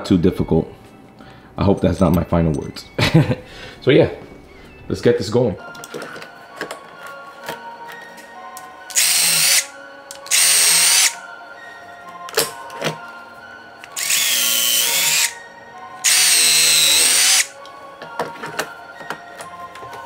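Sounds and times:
cordless drill whirring: 8.9s - 11.2s, 14.0s - 15.4s, 16.0s - 17.5s.

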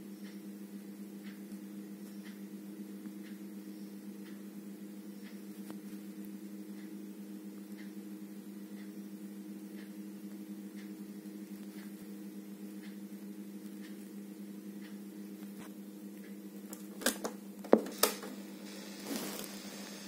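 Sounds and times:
steady low hum: 0.0s - 20.0s
cassette player buttons clicking: 16.7s - 18.3s.

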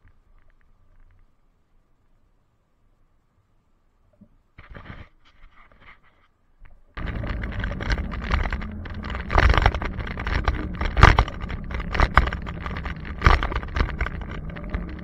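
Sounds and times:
faint low hum: 0.0s - 15.0s
handlebar knocks and rattles: 7.0s - 15.0s
wind and road rumble: 7.0s - 15.0s.

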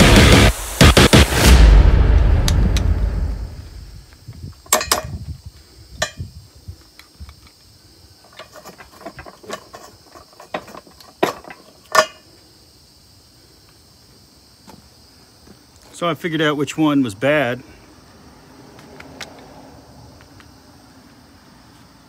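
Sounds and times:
pliers and metal parts clicking: 4.6s - 5.2s, 6.0s - 12.3s.

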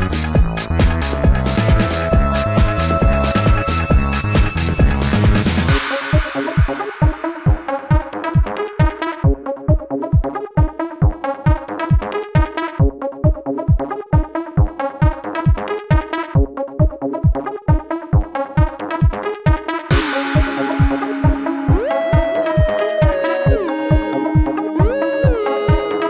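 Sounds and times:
electronic dance music: 0.0s - 26.0s
kick drum: 0.0s - 26.0s
held synth note: 1.6s - 5.1s, 19.9s - 26.0s.

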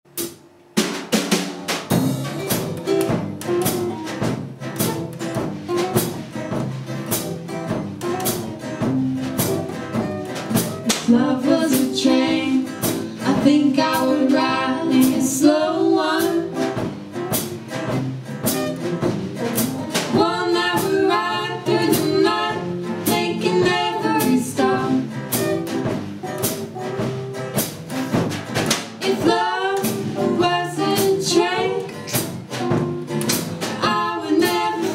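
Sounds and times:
drum kit beat: 0.1s - 34.9s
acoustic bass guitar: 1.5s - 34.9s
acoustic guitars: 1.5s - 34.9s
woman singing: 11.0s - 16.8s, 19.9s - 25.2s, 29.0s - 32.3s, 33.8s - 34.9s.

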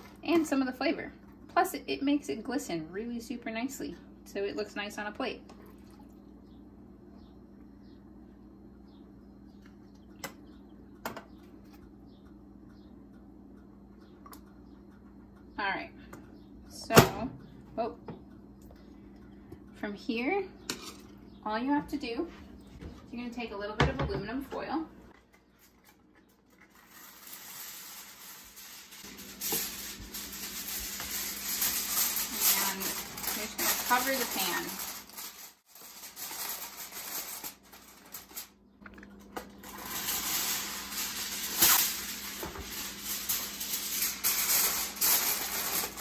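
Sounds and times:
steady low hum: 0.0s - 46.0s
aluminum foil crinkling: 25.2s - 38.6s, 39.2s - 46.0s.

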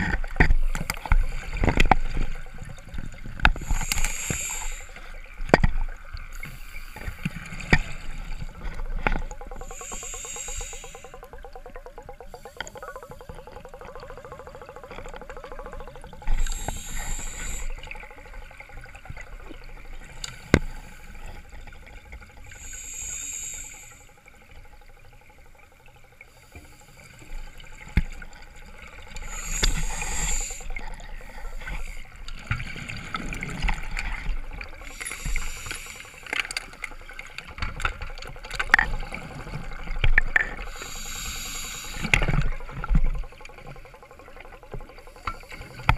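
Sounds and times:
regulator hissing inhalation: 3.6s - 5.1s, 9.6s - 11.2s, 16.4s - 17.8s, 22.5s - 24.1s, 29.2s - 32.0s, 34.8s - 36.3s, 40.6s - 42.2s.

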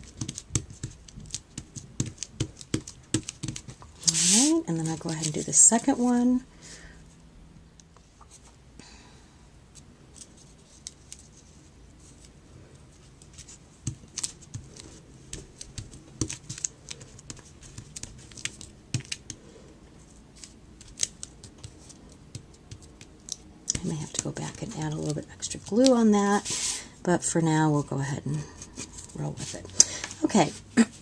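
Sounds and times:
paper crackles and taps: 0.0s - 4.2s, 13.2s - 19.4s, 20.4s - 26.0s.

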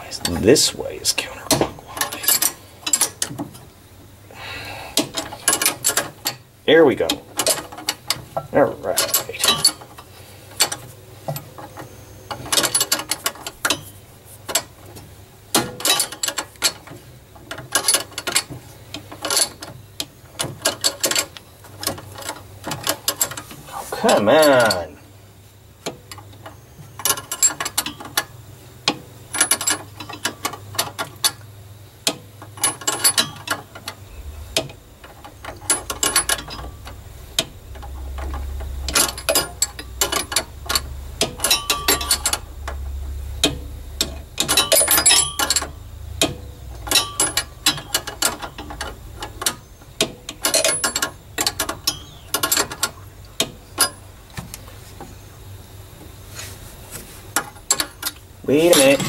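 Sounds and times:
ratchet wrench clicking: 34.2s - 54.0s.

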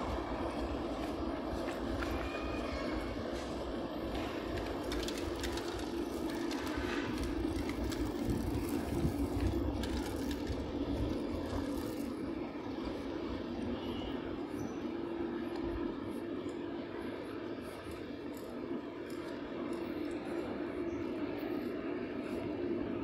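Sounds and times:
motor traffic: 0.0s - 23.0s.

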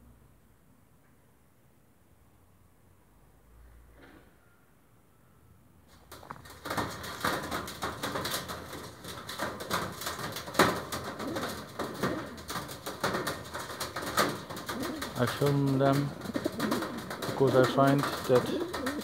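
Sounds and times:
clicks and rustles: 5.9s - 19.0s
pigeons cooing: 10.1s - 19.0s.

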